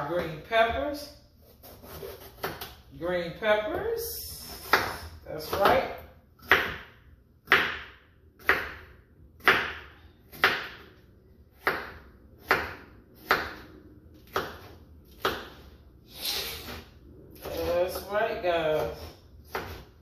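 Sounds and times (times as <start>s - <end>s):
knife chopping on wooden board: 1.6s - 2.8s, 4.6s - 10.9s, 11.5s - 15.7s, 17.4s - 20.0s.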